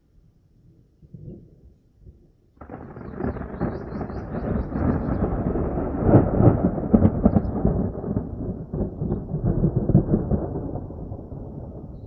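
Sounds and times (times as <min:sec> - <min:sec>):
rolling thunder with sharp cracks: 0:02.6 - 0:12.0.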